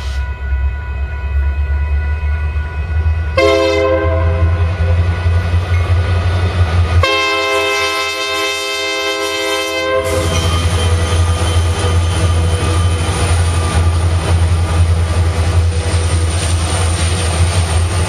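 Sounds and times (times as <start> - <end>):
diesel locomotive engine rumble: 0.0 - 18.0
locomotive air horn blasts: 3.4 - 4.7, 7.0 - 10.4.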